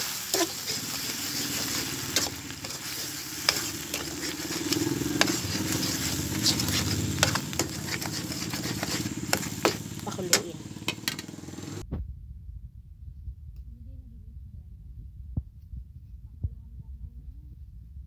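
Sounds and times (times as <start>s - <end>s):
metal spatula scraping pan: 0.0s - 11.4s
paste sizzling in a wok: 0.0s - 11.8s.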